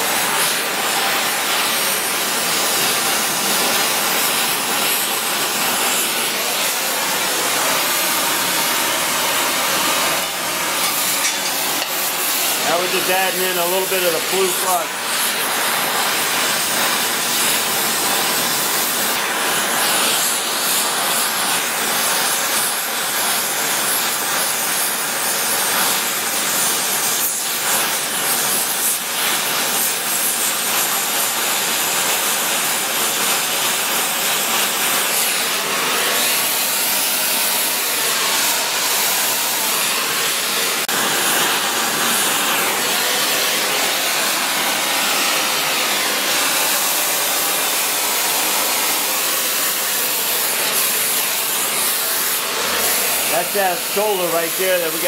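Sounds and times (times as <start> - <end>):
welding torch flame hissing: 0.0 - 55.0.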